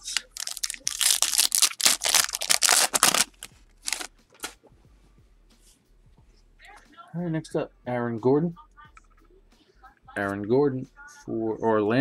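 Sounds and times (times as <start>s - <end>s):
wrapper tearing and crinkling: 0.0s - 4.6s.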